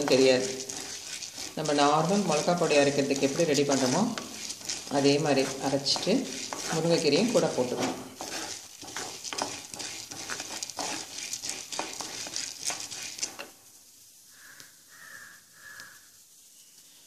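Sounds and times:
wooden spatula scraping a pot: 0:00.0 - 0:13.6
light sizzle: 0:00.0 - 0:17.0.

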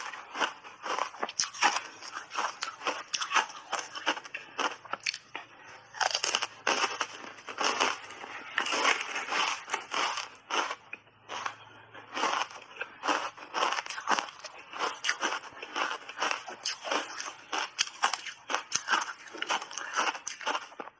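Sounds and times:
crunching frozen ice bars: 0:00.0 - 0:20.9.

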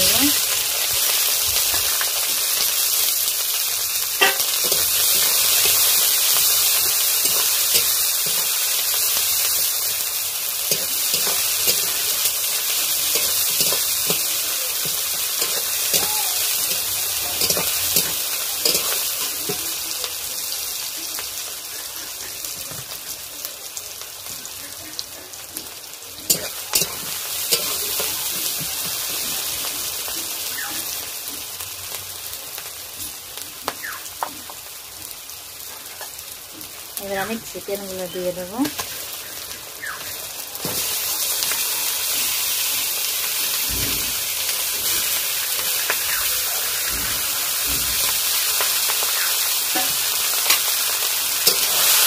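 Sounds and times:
onions sizzling in hot oil: 0:00.0 - 0:52.0
metal spatula clinking on pan: 0:04.2 - 0:04.8, 0:17.4 - 0:19.6, 0:26.3 - 0:27.8.

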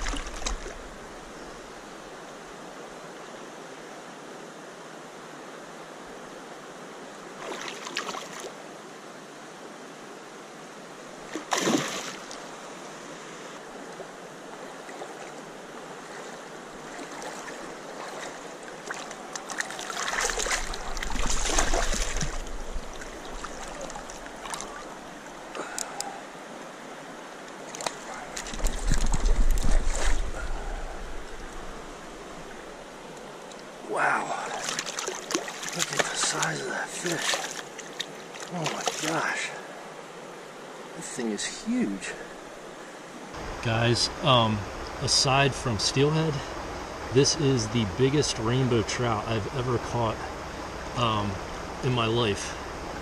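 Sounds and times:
flowing creek water: 0:00.0 - 0:53.0
fish splashing at surface: 0:11.3 - 0:12.2, 0:18.9 - 0:24.9.

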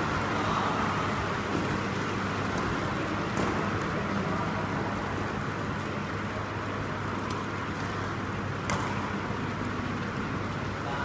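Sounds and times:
indoor hall hum and hiss: 0:00.0 - 0:11.0
rackets striking shuttlecock: 0:00.8 - 0:04.1, 0:07.2 - 0:09.4.

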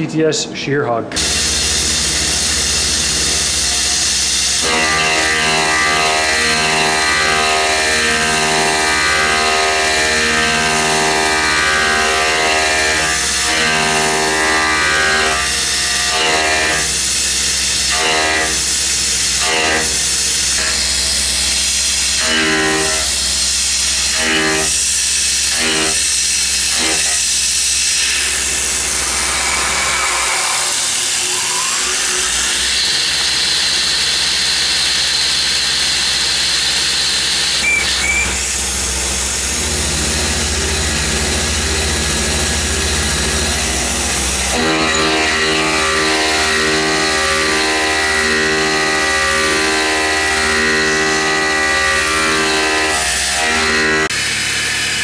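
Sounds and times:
mill cutting metal with whine: 0:01.2 - 0:55.0
short loud cutting bursts: 0:01.2 - 0:55.0
air blast hissing: 0:26.1 - 0:32.8.

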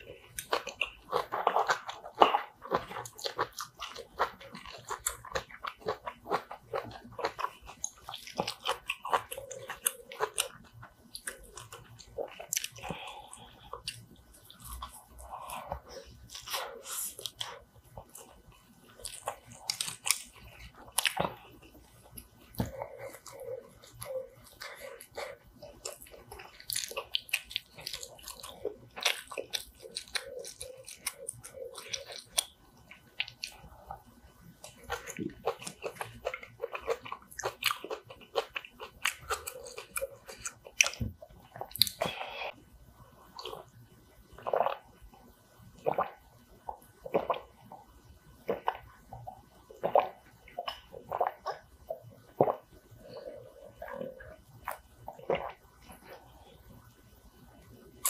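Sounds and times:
chewing and mouth sounds: 0:00.0 - 0:42.6, 0:43.2 - 0:58.0.

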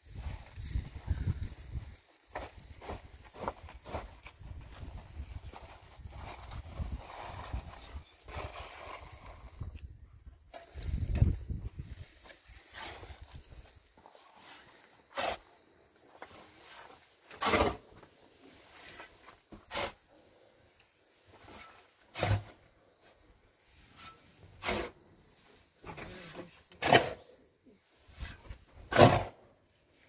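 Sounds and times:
scraping strokes: 0:21.4 - 0:27.3.

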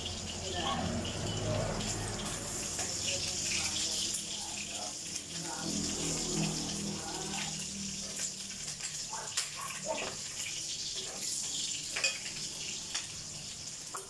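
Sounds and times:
meat sizzling in oil: 0:00.0 - 0:14.0.

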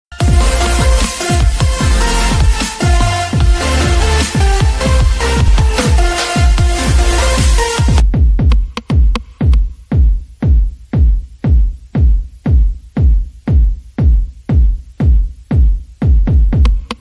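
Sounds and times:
electronic music layer: 0:00.1 - 0:09.8
kick drum beats: 0:00.1 - 0:17.0.

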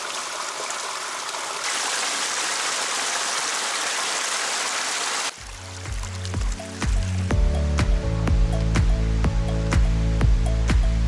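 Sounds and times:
creek rushing over rocks: 0:00.0 - 0:07.3
small waterfall rushing: 0:00.0 - 0:07.3.

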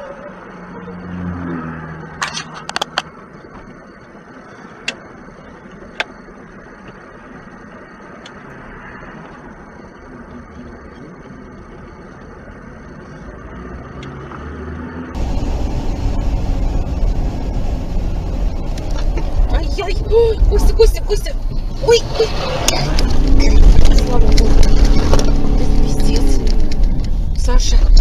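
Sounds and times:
car engine and road noise: 0:00.0 - 0:28.0.

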